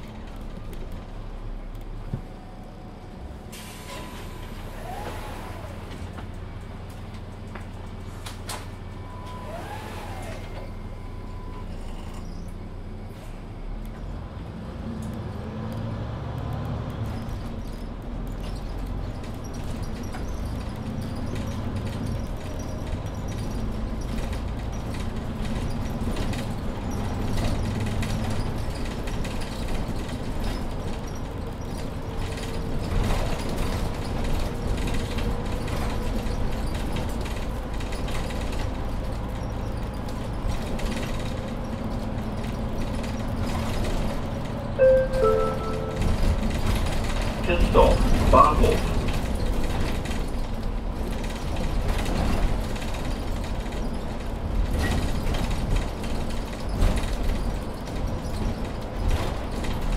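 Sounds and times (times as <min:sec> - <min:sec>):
bus engine running: 0:00.0 - 0:59.9
road noise: 0:00.0 - 0:59.9
interior rattles and clicks: 0:16.5 - 0:44.8, 0:46.0 - 0:59.9.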